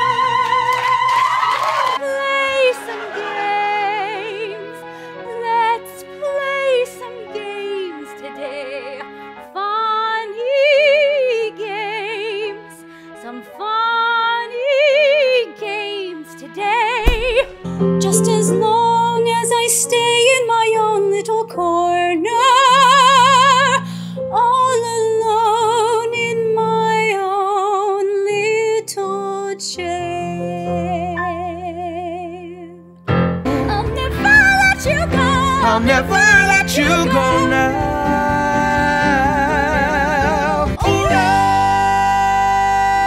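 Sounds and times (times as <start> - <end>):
click: 17.0 - 17.6
piano accompaniment: 17.0 - 43.0.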